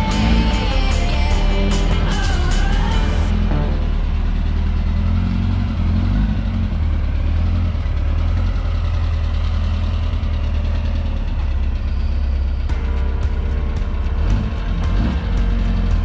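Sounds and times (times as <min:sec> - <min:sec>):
music with a beat: 0:00.0 - 0:03.7, 0:12.7 - 0:16.0
car engine running at low revs: 0:00.0 - 0:16.0.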